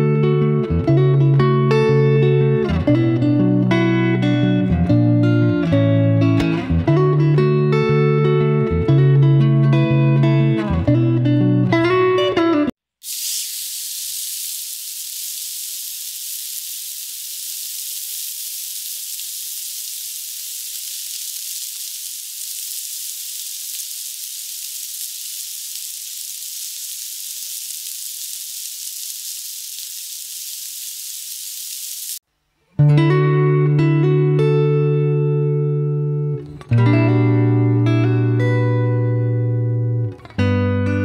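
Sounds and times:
angle grinder high hiss: 13.0 - 32.2.

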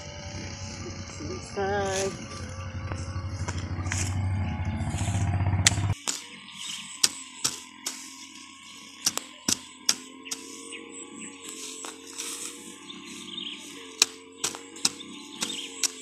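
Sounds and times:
low motor-like drone: 0.0 - 16.0
hand hoe chopping soil: 5.6 - 8.4, 9.0 - 10.7, 11.4 - 13.2, 13.9 - 16.0.

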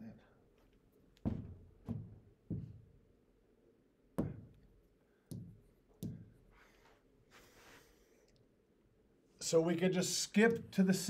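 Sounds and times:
sharp taps on whiteboard: 5.3 - 6.3.

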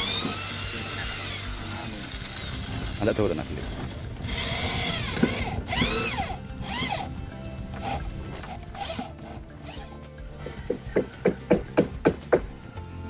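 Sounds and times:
electric drill boring into wood: 0.0 - 10.0.

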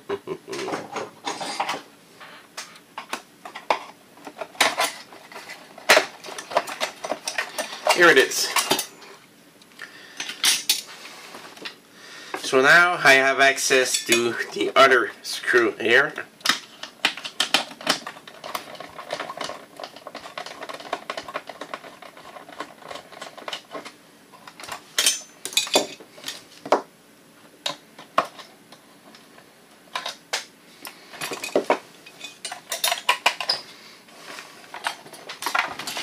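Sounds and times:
metal clicks and clinks: 31.2 - 33.6.

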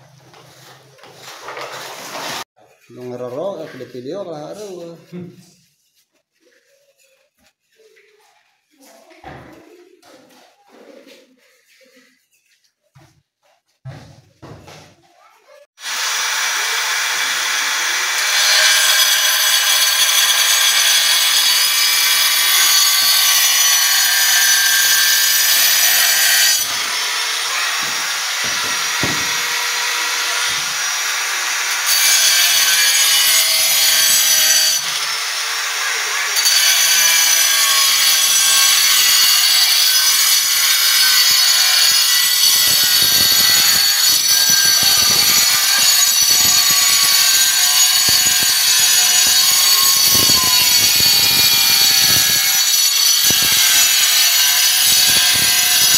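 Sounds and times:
angle grinder cutting tiles: 1.2 - 2.5, 15.8 - 55.9.

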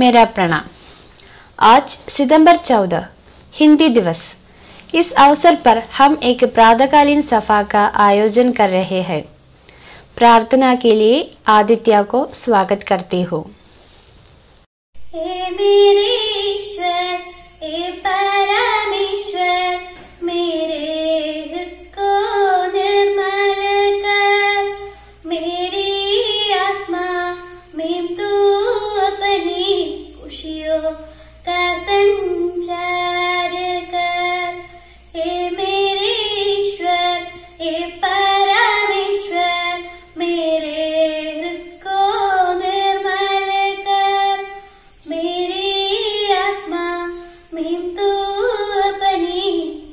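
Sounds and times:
girl singing solo: 15.0 - 49.9.

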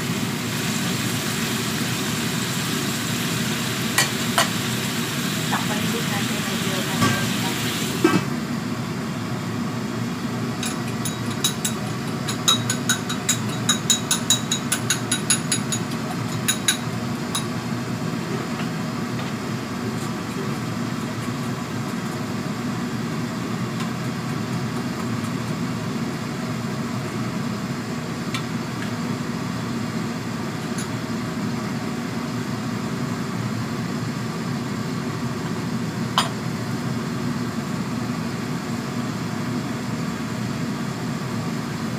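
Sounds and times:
gas stove humming: 0.0 - 41.9
wok simmering: 0.0 - 41.9.

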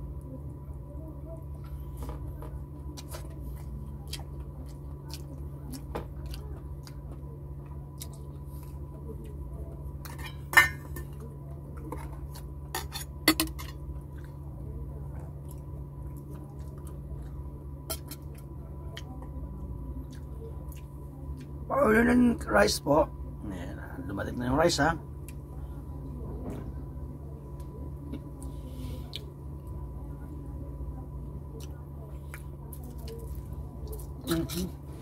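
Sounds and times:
steady low hum: 0.0 - 35.0
dishes clinking: 10.0 - 11.2.

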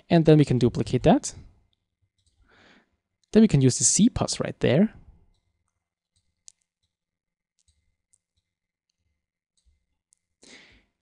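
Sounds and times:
computer mouse clicks: 2.2 - 2.4, 5.3 - 7.0, 7.6 - 8.5.

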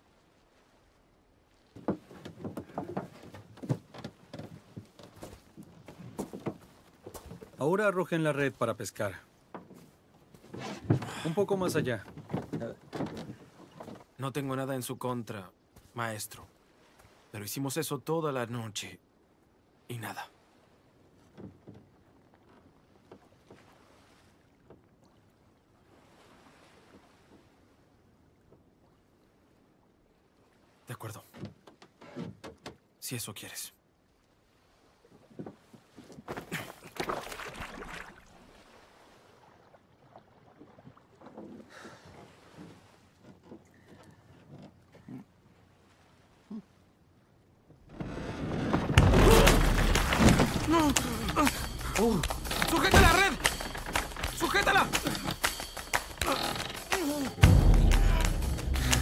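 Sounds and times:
faint water lapping: 0.0 - 59.0
soft knocks of boat timbers: 1.7 - 7.6, 9.4 - 14.2, 21.2 - 23.8, 31.3 - 32.9, 35.2 - 36.5, 40.6 - 45.1, 48.6 - 59.0
irregular knocks taps and scuffs: 49.0 - 59.0.

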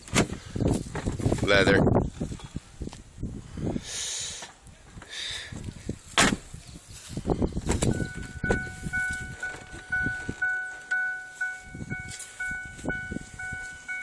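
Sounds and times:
car warning chime dinging: 7.9 - 14.0.

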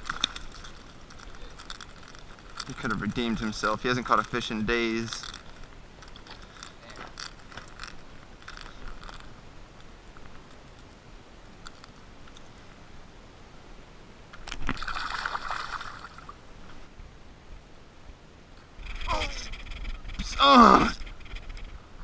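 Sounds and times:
shallow water sloshing: 14.6 - 16.4.

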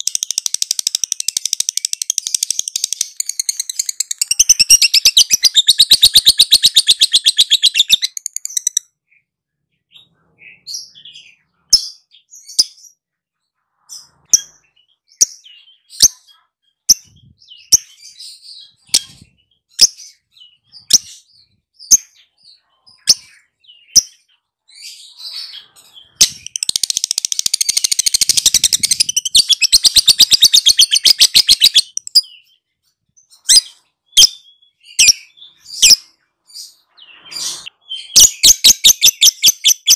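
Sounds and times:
lovebird chattering trill: 0.0 - 8.8, 25.2 - 32.4
sharp bird chirps: 0.0 - 39.9.

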